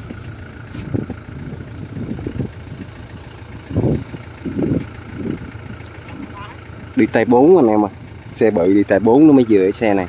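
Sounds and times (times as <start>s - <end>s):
low bumps: 0.0s - 7.3s
engine idling: 0.0s - 10.0s.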